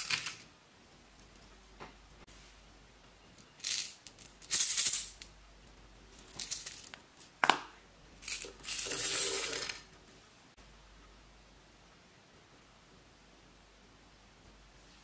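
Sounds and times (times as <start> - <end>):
beads being poured out: 8.2 - 9.9.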